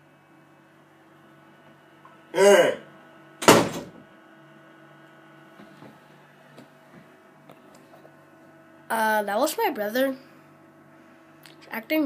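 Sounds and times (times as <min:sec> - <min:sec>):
mini fridge humming: 0:00.0 - 0:12.0
person shouting: 0:02.4 - 0:02.8.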